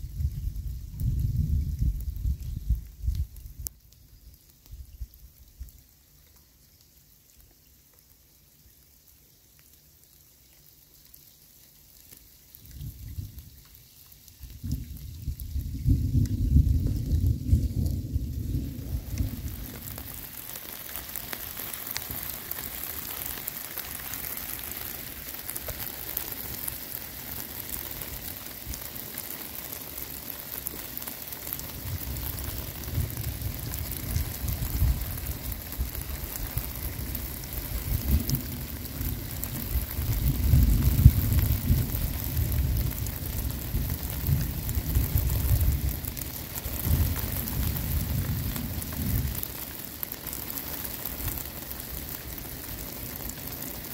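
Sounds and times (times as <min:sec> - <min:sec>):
rain hissing on water and sand: 0:00.0 - 0:53.9
low rumble: 0:14.6 - 0:20.2.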